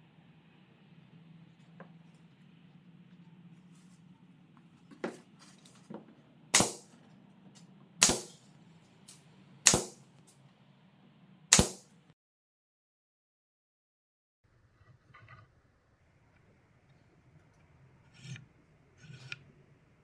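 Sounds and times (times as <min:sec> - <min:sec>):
nail gun firing: 0:06.6 - 0:06.9, 0:08.0 - 0:08.4, 0:09.7 - 0:10.0, 0:11.5 - 0:11.8.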